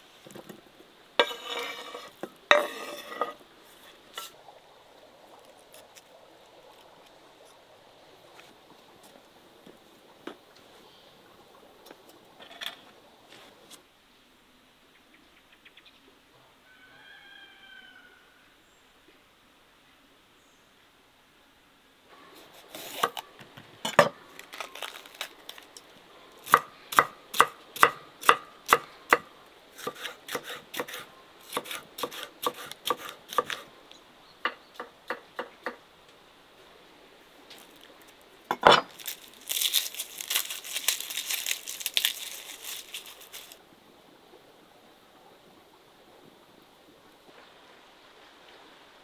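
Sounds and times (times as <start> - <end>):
wood fire crackling: 24.2 - 29.2, 37.5 - 43.6.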